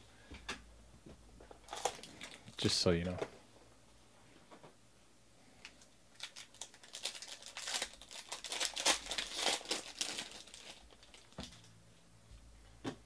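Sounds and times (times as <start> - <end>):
foil wrapper tearing and crinkling: 6.1 - 11.5.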